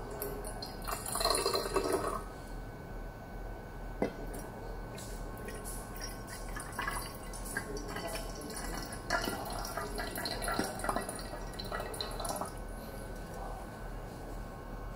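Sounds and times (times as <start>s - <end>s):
water dripping and trickling: 5.5s - 12.6s.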